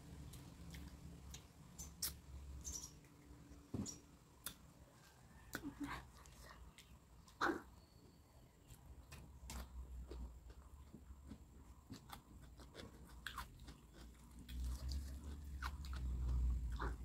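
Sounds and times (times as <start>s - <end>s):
low steady hum: 0.0s - 17.0s
person chewing: 8.7s - 17.0s.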